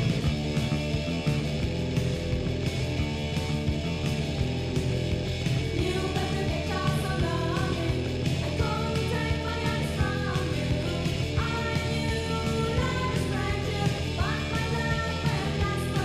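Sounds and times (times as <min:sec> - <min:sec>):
drums: 0:00.0 - 0:16.0
electric guitar: 0:00.0 - 0:16.0
person singing: 0:05.8 - 0:16.0.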